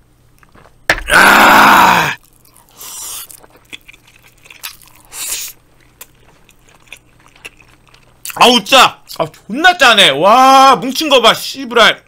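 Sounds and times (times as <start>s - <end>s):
chewing: 2.2s - 8.4s.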